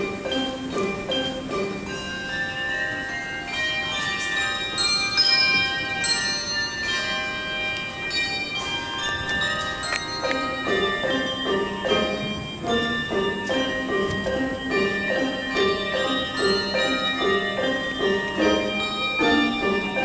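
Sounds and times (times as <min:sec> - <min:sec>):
handbell choir playing: 0:00.0 - 0:20.0.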